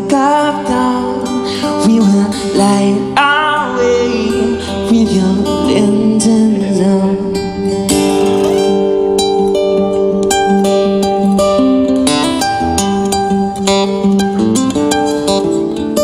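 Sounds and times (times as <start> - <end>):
man singing into a microphone: 0.0 - 8.8
plucked string accompaniment: 0.0 - 16.0.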